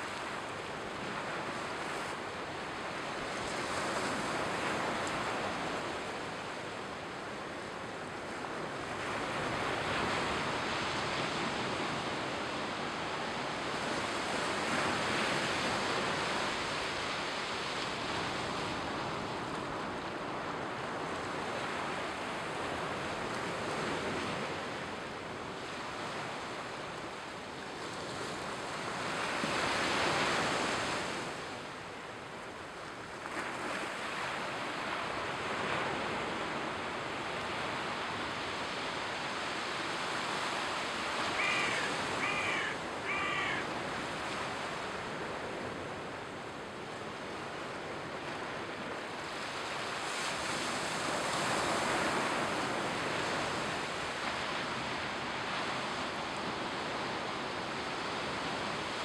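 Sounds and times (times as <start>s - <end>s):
sea waves breaking on beach: 32.9s - 59.0s
bird calling: 41.2s - 43.7s.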